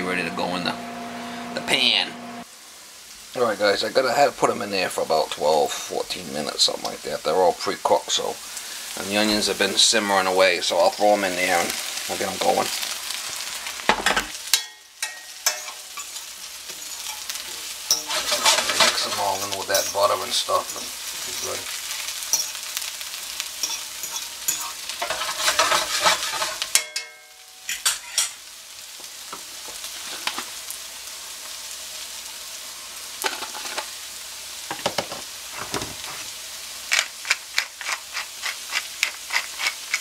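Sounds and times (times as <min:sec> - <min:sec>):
potatoes and onions sizzling: 0:00.0 - 0:40.0
utensil scraping a pan: 0:11.4 - 0:23.0, 0:23.6 - 0:26.9, 0:35.5 - 0:36.3, 0:36.9 - 0:40.0
pepper mill grinding: 0:15.0 - 0:26.8, 0:36.9 - 0:40.0.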